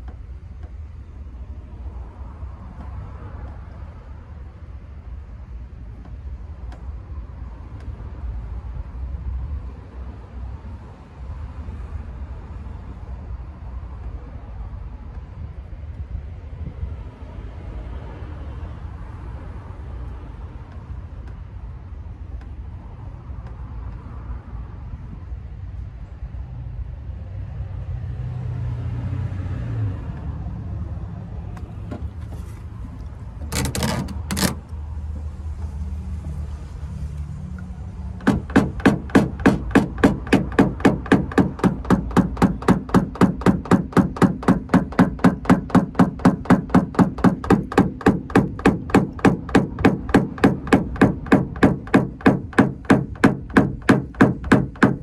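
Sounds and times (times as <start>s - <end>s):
hammer tapping on metal: 33.5s - 34.6s, 38.2s - 55.0s
low background rumble: 37.7s - 55.0s.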